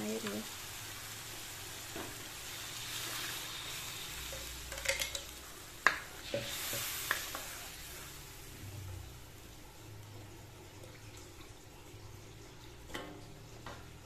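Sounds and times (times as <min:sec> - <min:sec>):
paste sizzling in a wok: 0:00.0 - 0:10.5
spatula knocking and scraping wok: 0:04.3 - 0:07.6.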